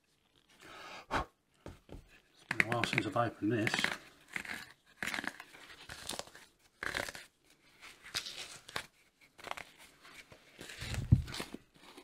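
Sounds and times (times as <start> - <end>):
dried dye crunching on bottle cap: 2.4 - 7.3.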